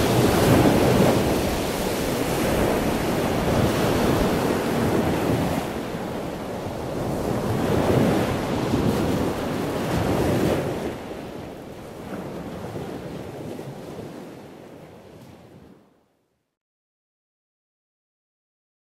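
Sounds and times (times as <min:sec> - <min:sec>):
ocean surf washing in: 0:00.0 - 0:15.7
wind on microphone: 0:00.0 - 0:15.9.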